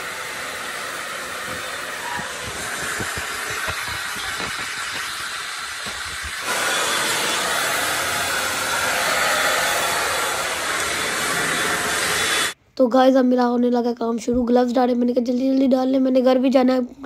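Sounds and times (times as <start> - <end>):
hair dryer blowing: 0.0 - 12.6.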